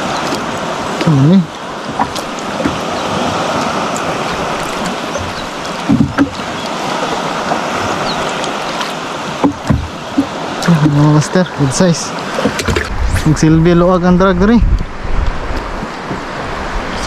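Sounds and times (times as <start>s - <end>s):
sea water rushing around boat: 0.0s - 17.0s.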